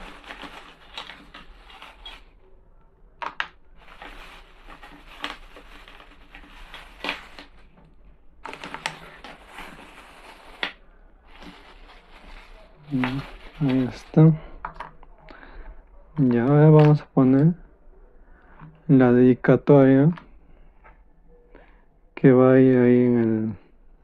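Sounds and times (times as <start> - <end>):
soft rustling handling: 3.8 - 15.4.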